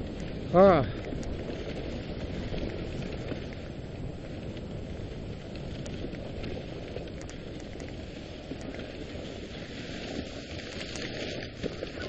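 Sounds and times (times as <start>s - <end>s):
sled runners hissing on snow: 0.0s - 12.0s
faint clicks: 5.5s - 8.9s.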